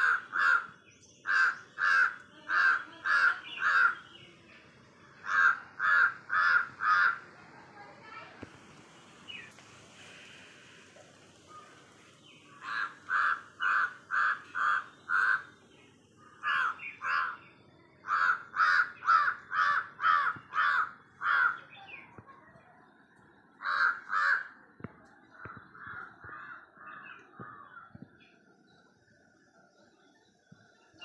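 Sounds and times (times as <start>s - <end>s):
crow cawing: 0.0s - 4.0s, 5.2s - 7.4s, 12.6s - 15.6s, 16.4s - 17.4s, 18.0s - 21.6s, 23.6s - 24.6s, 25.8s - 27.8s.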